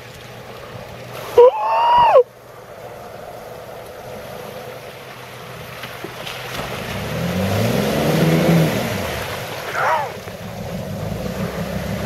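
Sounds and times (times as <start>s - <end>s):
water sloshing: 3.6s - 12.0s
car engine revving: 6.6s - 12.0s.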